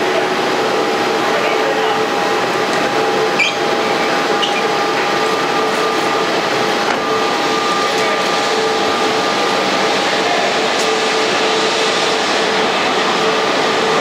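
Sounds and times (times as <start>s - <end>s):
jet engine rush and whine: 0.0s - 14.0s.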